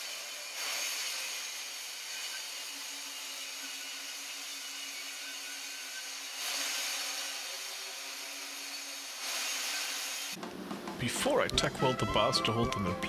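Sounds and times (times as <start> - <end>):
angle grinder grinding steel: 0.0 - 10.4.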